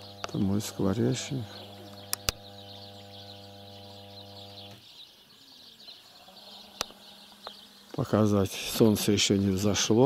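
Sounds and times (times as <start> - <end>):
low machine hum: 0.0 - 4.8
small birds chirping: 0.0 - 10.0
sharp click: 1.9 - 2.5.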